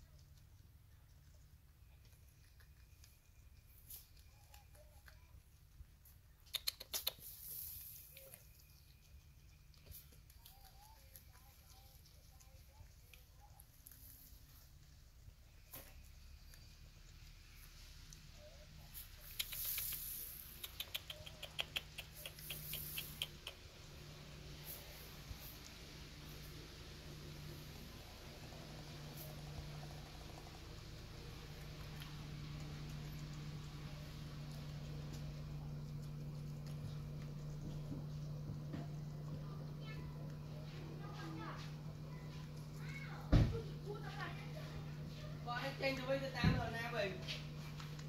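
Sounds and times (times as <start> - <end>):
porcupine chewing clicks: 0.0 - 46.2, 46.9 - 48.0
short hiss: 7.0 - 8.1, 19.2 - 20.7, 22.4 - 23.3
rustle: 7.1 - 8.5.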